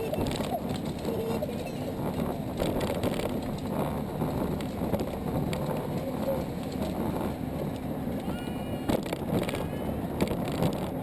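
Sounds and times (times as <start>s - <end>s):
go-kart rattling over pavement: 0.0s - 11.0s.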